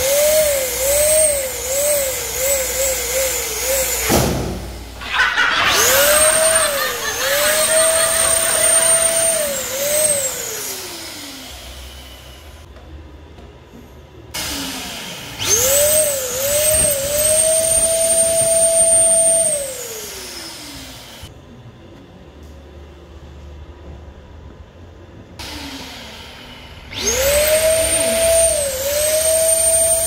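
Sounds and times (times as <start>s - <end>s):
electric balloon pump whining: 0.0s - 12.5s, 14.4s - 21.3s, 26.8s - 30.0s.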